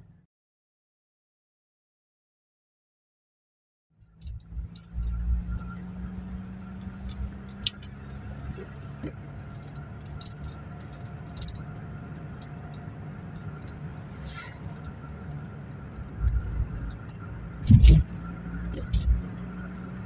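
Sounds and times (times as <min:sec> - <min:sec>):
car engine running: 0:04.0 - 0:20.0
light clicks and rattles: 0:06.7 - 0:14.0.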